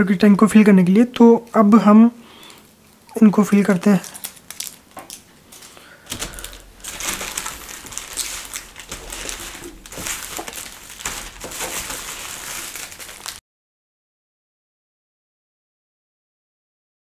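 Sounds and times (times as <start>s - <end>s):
plastic bottles clicking and crackling: 2.5s - 13.4s.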